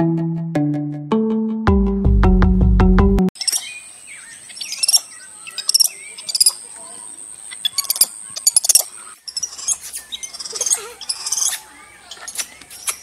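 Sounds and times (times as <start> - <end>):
high-pitched chirping calls: 3.4 - 13.0.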